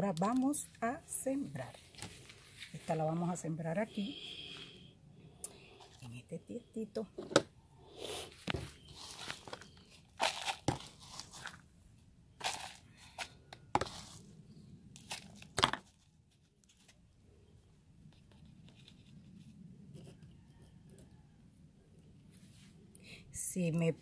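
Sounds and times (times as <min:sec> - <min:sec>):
faint soil handling: 0:00.0 - 0:21.2
scoop scraping potting soil: 0:07.1 - 0:11.7, 0:12.4 - 0:15.7.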